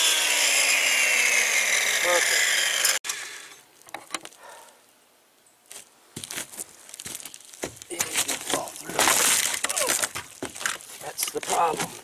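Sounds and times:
crinkling and scraping: 5.7 - 12.0.

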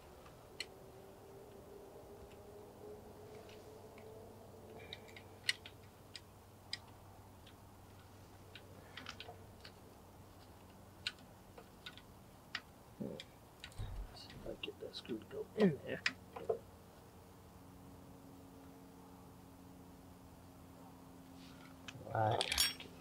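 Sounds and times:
small metal clicks and taps: 10.4 - 13.9.

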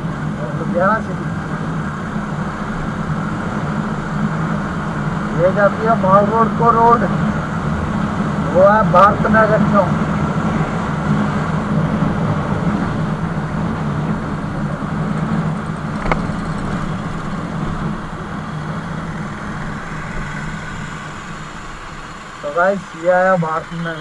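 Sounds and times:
motorcycle engine running: 0.0 - 24.0
road and wind noise: 0.0 - 24.0
sharp click: 15.9 - 17.4.

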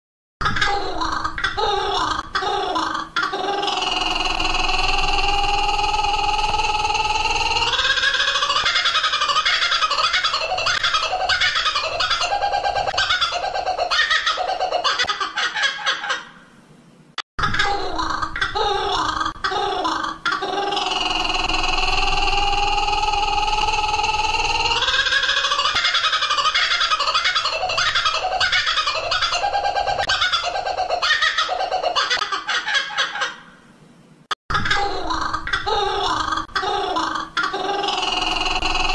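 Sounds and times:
kookaburra laughing call: 0.4 - 16.4, 17.4 - 33.6, 34.6 - 38.9.

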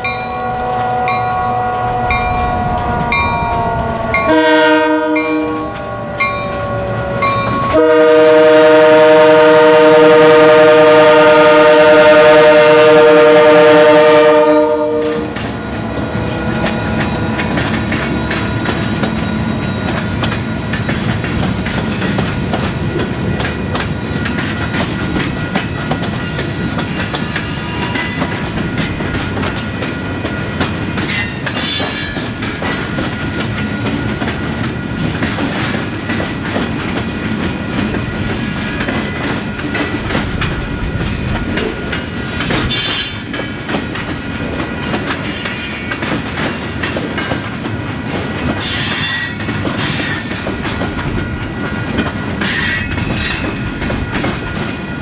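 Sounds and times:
locomotive bell ringing: 0.0 - 8.5, 14.6 - 22.2, 22.8 - 36.6, 48.6 - 55.0
locomotive horn: 0.0 - 17.8
train wheels clicking over rail joints: 15.2 - 55.0.

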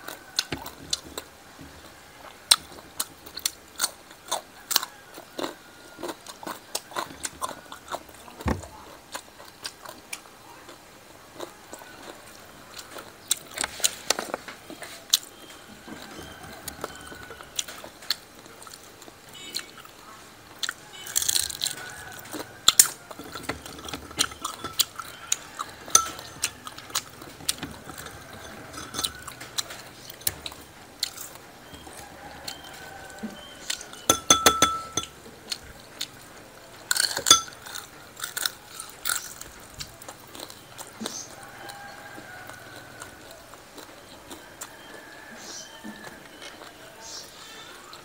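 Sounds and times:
crunching and chewing: 0.0 - 48.0.

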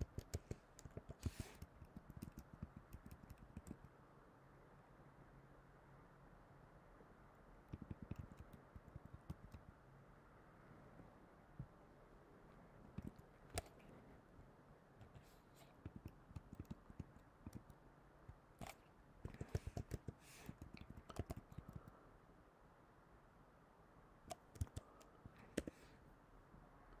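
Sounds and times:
faint keyboard typing: 0.0 - 4.0, 7.5 - 9.8, 12.5 - 22.1, 24.2 - 26.0.

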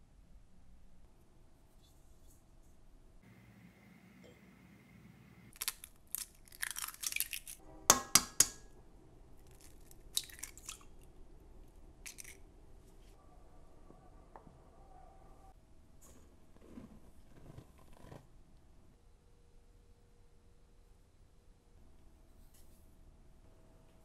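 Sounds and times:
eggshell crackling: 5.5 - 7.6, 9.4 - 12.6
egg tapping on metal bowl: 7.9 - 8.7.

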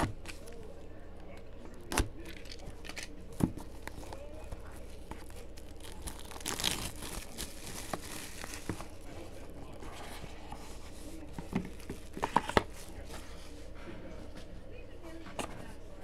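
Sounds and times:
wrapper crinkling: 2.2 - 9.2.

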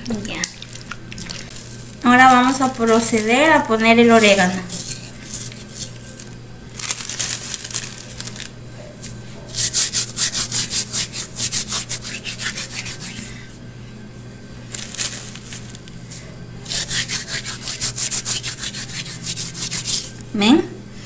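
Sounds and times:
dried herbs rubbed between fingers: 9.0 - 13.4, 14.8 - 20.2.

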